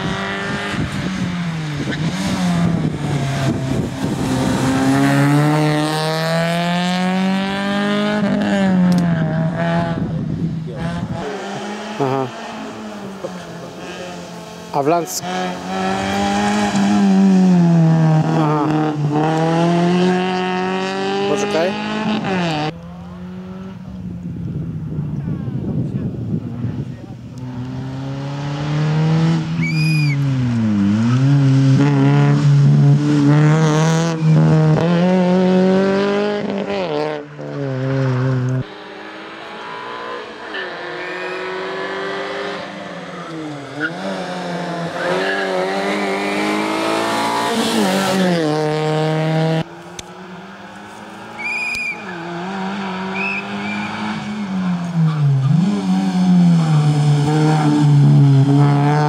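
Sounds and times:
rally car engine revving: 0.0s - 59.0s
tyre squeals: 29.6s - 30.3s, 39.6s - 41.8s, 51.2s - 55.6s.

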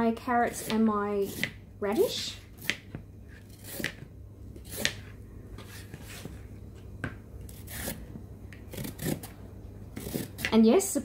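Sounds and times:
peeler scraping carrot: 0.4s - 4.0s, 7.5s - 8.0s, 8.7s - 9.3s, 10.0s - 10.6s.

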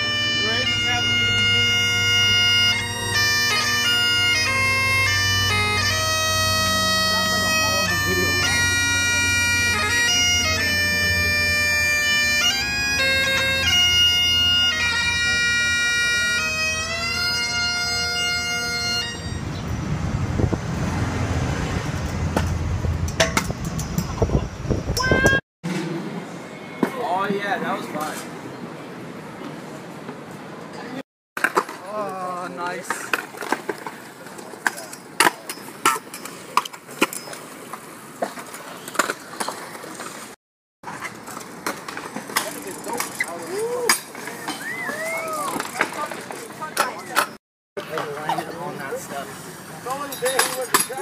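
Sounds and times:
scooter wheels rolling on concrete: 19.2s - 28.5s, 29.3s - 51.0s
skateboard decks clacking on ground: 31.4s - 48.6s, 50.0s - 51.0s.

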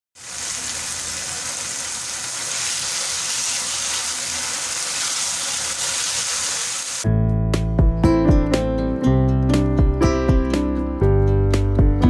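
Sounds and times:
curry sizzling in oil: 0.2s - 7.1s.

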